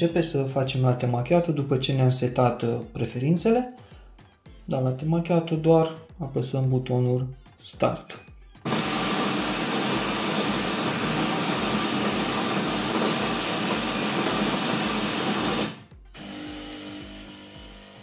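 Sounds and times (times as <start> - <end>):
coffee grinder whirring: 8.7 - 18.0
espresso machine humming: 8.7 - 18.0.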